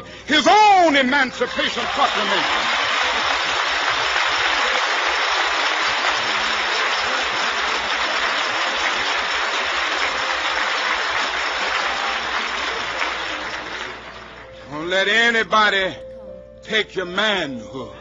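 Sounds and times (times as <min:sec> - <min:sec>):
audience applauding: 0:01.4 - 0:14.6.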